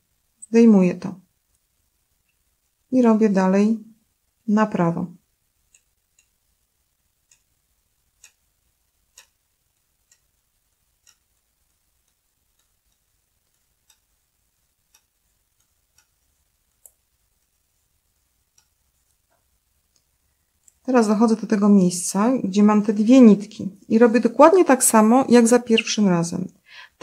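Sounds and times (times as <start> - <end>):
metal knitting needles clicking: 5.6 - 6.4, 7.2 - 17.6, 18.4 - 20.9.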